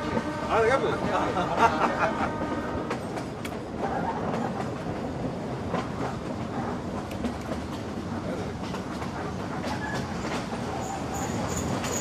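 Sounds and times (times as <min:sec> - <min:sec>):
train wheels on rails: 0:00.0 - 0:12.0
sharp rail clacks: 0:06.9 - 0:08.0.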